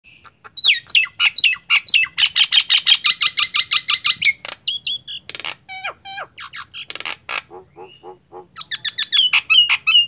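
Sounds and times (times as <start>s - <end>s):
bird singing whistles: 8.6s - 10.0s.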